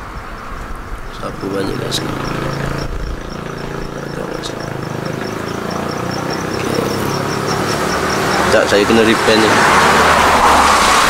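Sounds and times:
engine idling: 0:01.1 - 0:09.9.

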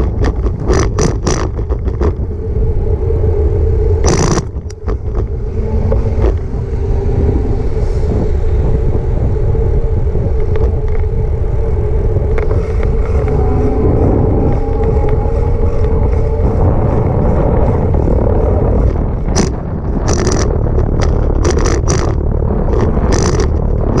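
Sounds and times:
bike rattling over rough paving: 0:00.0 - 0:02.2, 0:12.5 - 0:24.0
road traffic: 0:00.0 - 0:24.0
wind rushing over microphone: 0:00.0 - 0:24.0.

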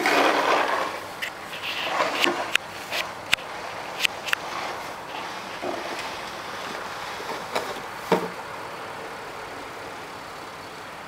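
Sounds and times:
short knocks or scrapes: 0:00.0 - 0:08.4
outdoor background hiss: 0:00.0 - 0:11.0.

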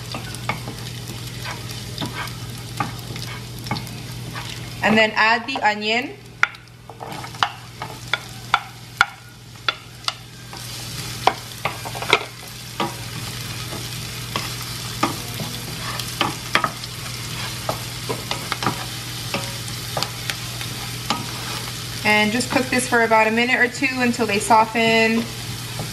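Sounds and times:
onion sizzling in hot oil: 0:00.0 - 0:25.9
wooden spoon scraping pan: 0:01.4 - 0:03.5, 0:15.4 - 0:16.4, 0:17.2 - 0:18.9, 0:20.8 - 0:21.8.

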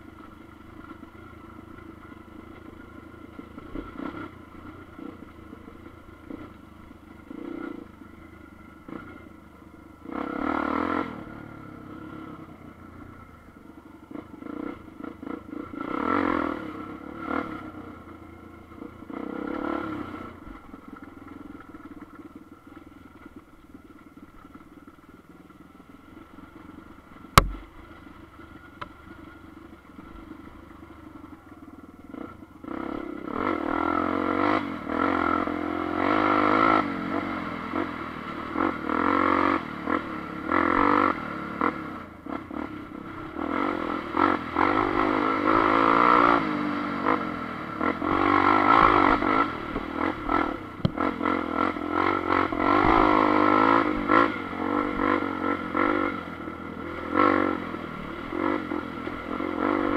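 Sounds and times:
motorcycle engine revving: 0:00.0 - 0:59.9
sharp knock: 0:27.4 - 0:27.7.

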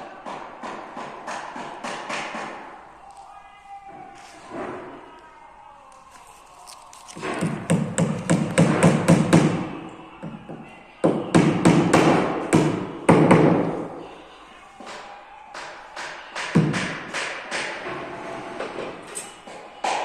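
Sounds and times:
hammer blows echoing: 0:00.0 - 0:02.9, 0:07.2 - 0:20.0.

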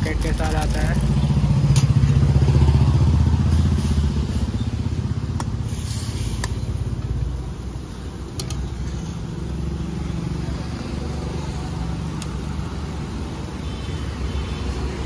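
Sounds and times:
motorcycle engine running: 0:00.0 - 0:05.7.

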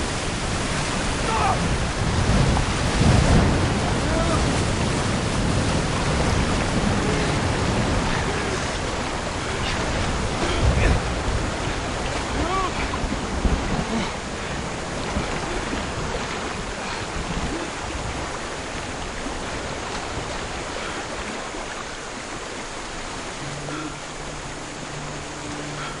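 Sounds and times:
rushing water: 0:00.0 - 0:26.0
low two-tone drone: 0:23.4 - 0:26.0.

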